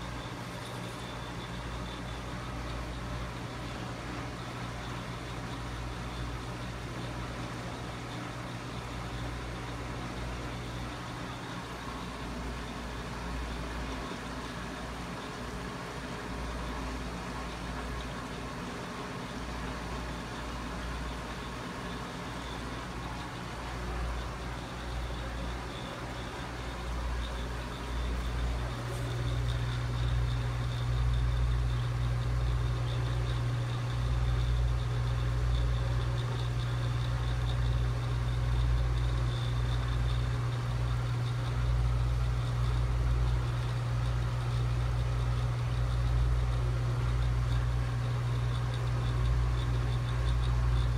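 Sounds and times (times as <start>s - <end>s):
faint high whine: 0.0s - 50.9s
motor humming: 21.6s - 50.9s.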